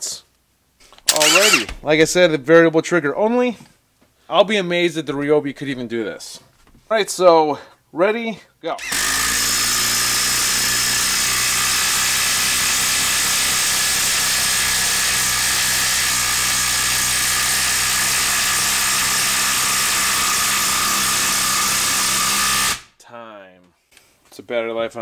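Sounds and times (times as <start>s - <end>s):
impact driver hammering: 1.1s - 1.9s, 8.8s - 22.9s.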